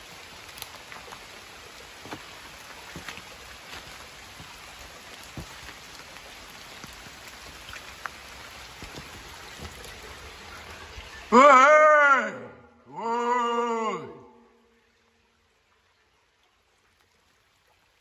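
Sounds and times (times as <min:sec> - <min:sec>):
raindrops ticking: 0:00.0 - 0:11.0
light rain hissing: 0:00.0 - 0:11.4.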